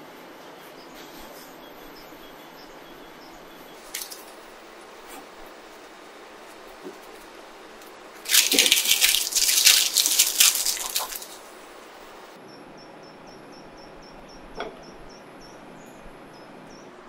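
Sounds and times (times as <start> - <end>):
faint high chirps: 0.6 - 4.6
parchment paper crinkling: 3.8 - 4.4, 8.2 - 11.6.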